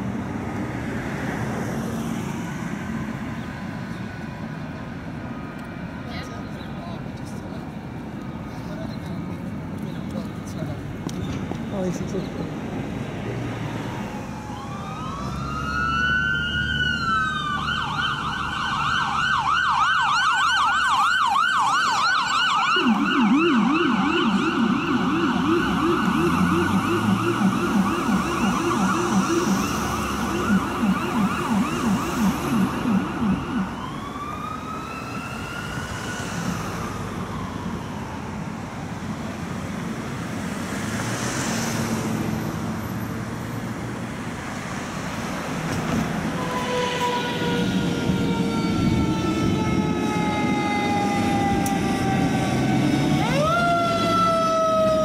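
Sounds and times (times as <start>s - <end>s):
traffic noise: 0.0s - 55.0s
lower siren yelp: 13.6s - 39.2s, 46.3s - 55.0s
ambulance siren wailing and yelping: 13.7s - 39.0s, 46.3s - 55.0s.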